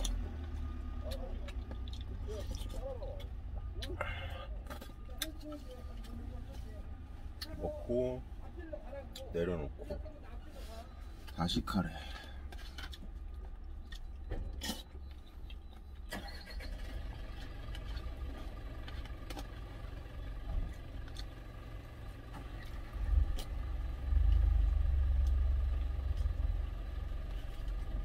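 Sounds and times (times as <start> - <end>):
truck engines pulling away: 0.0 - 5.6, 14.2 - 28.0.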